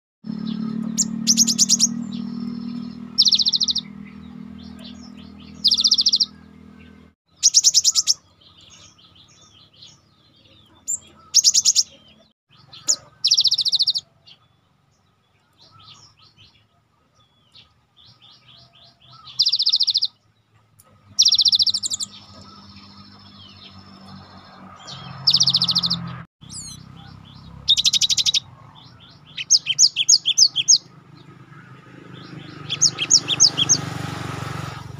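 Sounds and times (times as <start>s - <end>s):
bird singing rapid high notes: 0.2s - 16.7s, 17.4s - 20.3s, 20.9s - 34.9s
soft bird chirps: 0.3s - 34.2s.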